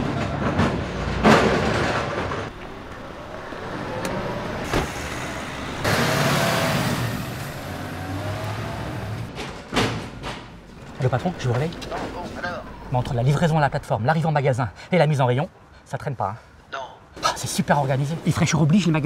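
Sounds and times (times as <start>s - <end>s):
car driving off: 1.0s - 9.6s
car door shutting: 4.0s - 6.1s.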